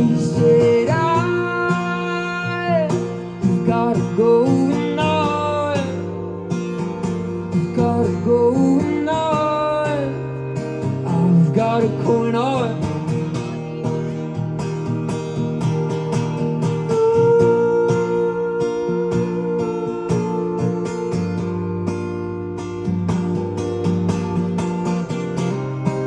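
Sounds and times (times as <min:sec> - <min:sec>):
strummed acoustic guitar: 0:00.0 - 0:26.0
person singing: 0:16.7 - 0:21.6.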